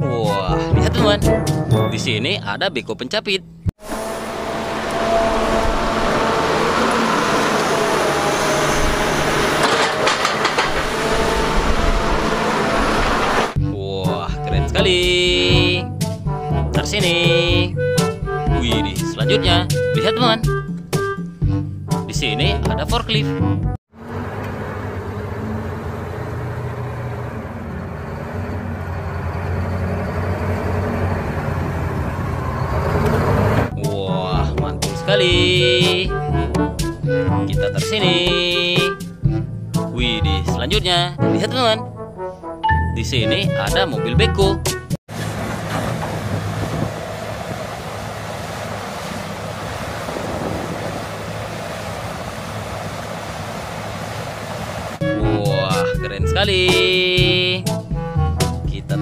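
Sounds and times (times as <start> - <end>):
diesel engine droning: 3.4 - 22.8, 23.4 - 40.8, 45.1 - 59.0
wind noise on microphone: 46.1 - 47.1, 49.7 - 52.5.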